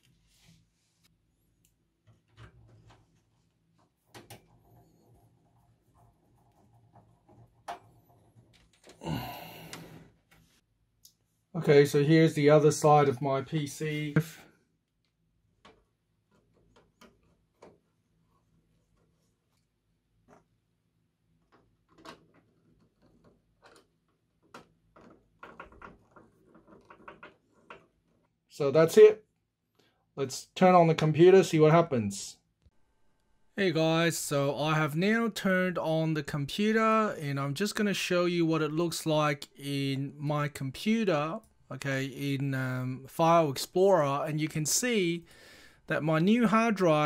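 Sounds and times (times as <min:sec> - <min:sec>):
faint clicks and knocks: 0:21.3 - 0:28.4.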